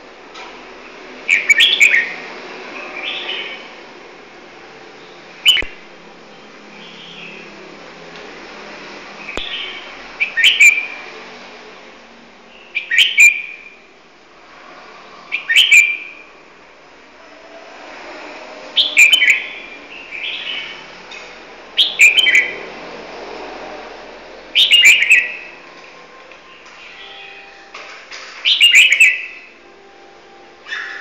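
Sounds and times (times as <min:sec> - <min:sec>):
songbird singing: 0:01.2 - 0:03.8, 0:04.9 - 0:07.6, 0:09.2 - 0:11.1, 0:12.5 - 0:13.8, 0:15.3 - 0:16.3, 0:18.7 - 0:21.0, 0:21.8 - 0:22.7, 0:24.4 - 0:31.0.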